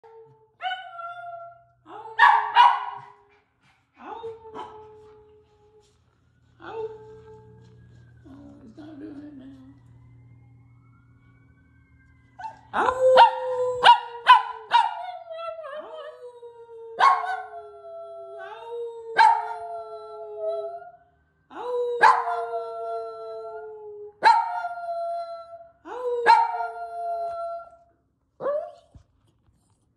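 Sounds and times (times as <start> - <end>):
small dog yipping and howling: 13.2 - 16.1, 17.0 - 17.4.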